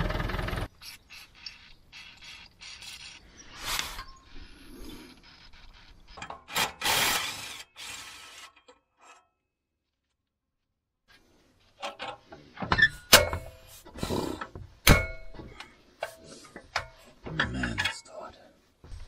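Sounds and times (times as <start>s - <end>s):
wrench scraping and clicking: 0.8s - 4.2s
sharp metal knocks: 12.8s - 13.6s, 14.8s - 15.6s.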